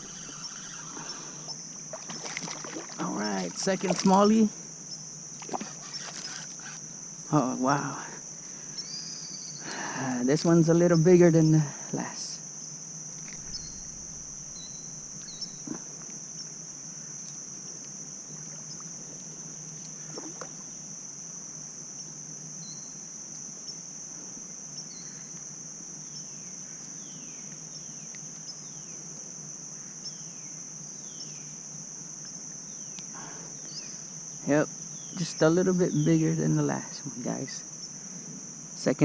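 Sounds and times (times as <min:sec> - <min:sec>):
faint downward-sliding chirps: 0:00.0 - 0:01.6, 0:13.2 - 0:15.9
high-pitched insect chorus: 0:00.0 - 0:39.0.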